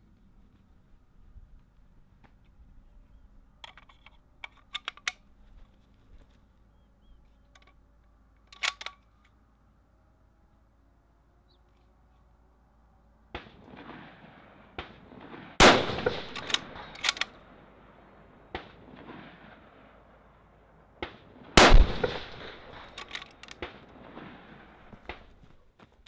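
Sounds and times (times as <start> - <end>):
sharp metallic clicks: 3.6 - 5.3, 8.4 - 9.4, 15.7 - 17.4, 21.0 - 23.8
rifle shots: 13.3 - 20.1, 21.0 - 25.4.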